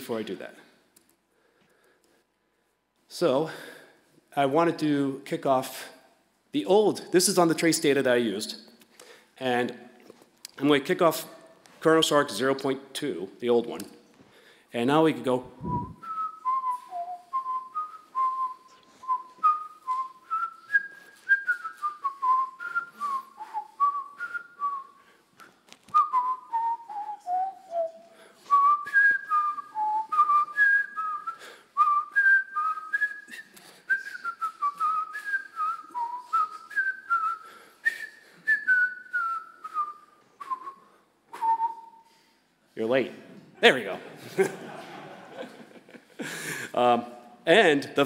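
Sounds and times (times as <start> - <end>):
person whistling a tune: 15.6 - 42.4.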